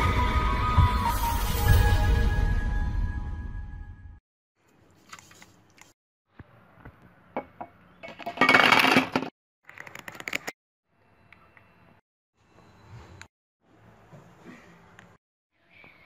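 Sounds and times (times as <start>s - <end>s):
art supplies handling noise: 4.7s - 6.0s.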